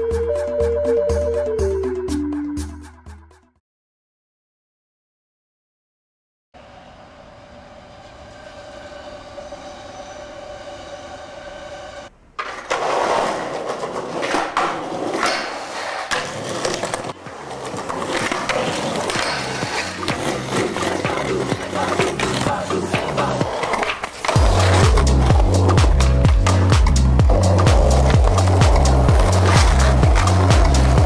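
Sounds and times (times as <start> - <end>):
skateboard wheels rolling on concrete: 6.6 - 31.0
skateboard grinding along ledge: 7.4 - 31.0
skateboard clacks and landings: 12.4 - 31.0.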